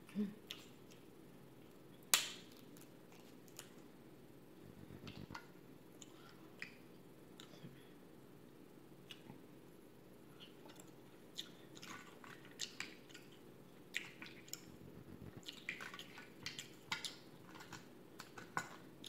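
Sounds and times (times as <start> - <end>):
faint steady hum: 0.0 - 19.0
wet chewing: 10.4 - 14.7, 15.3 - 18.8.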